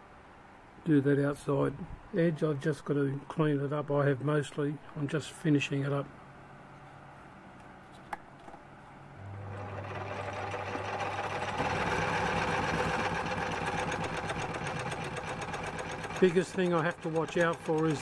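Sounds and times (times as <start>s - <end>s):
metal lathe motor whirring: 9.3s - 18.0s.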